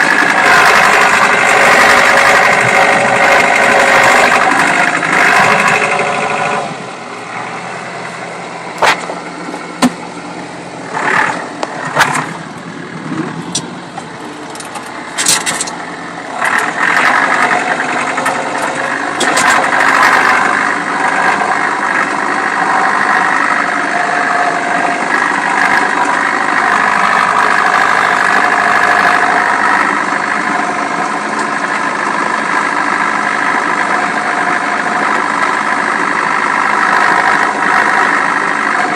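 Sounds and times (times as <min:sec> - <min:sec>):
tractor engine running: 0:00.0 - 0:38.9
sharp knocks and rattles: 0:11.0 - 0:12.4, 0:13.1 - 0:15.8, 0:16.4 - 0:20.5.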